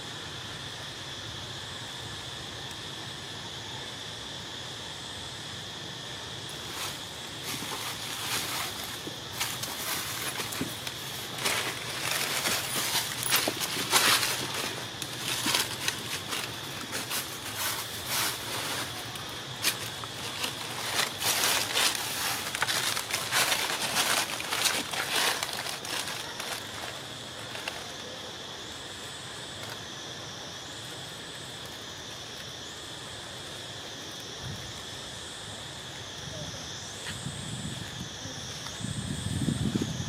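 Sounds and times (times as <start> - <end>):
high insect drone: 0.0 - 40.0
dry leaves crackling and rustling: 6.6 - 28.2.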